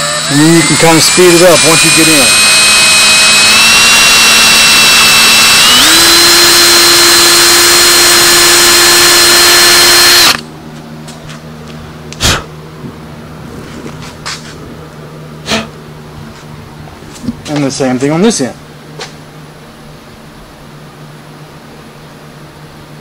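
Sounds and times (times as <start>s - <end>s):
drill motor whining: 0.0s - 10.4s.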